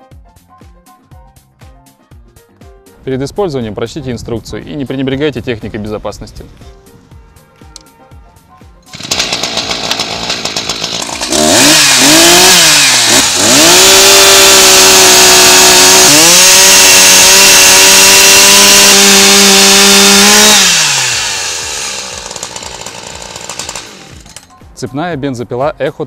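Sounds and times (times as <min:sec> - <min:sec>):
chainsaw cutting through log: 0:08.9 - 0:24.5
chainsaw idling and revving: 0:08.9 - 0:24.6.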